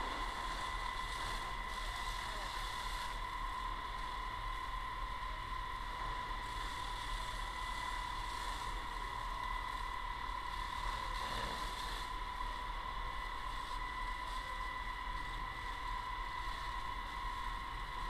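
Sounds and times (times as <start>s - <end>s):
fire hose spraying water: 0.0s - 18.0s
high-pitched whine: 0.0s - 18.0s.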